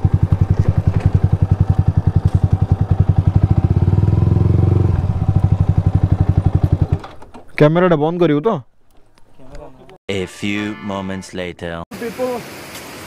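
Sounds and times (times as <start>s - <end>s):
motorcycle engine running: 0.0s - 7.3s.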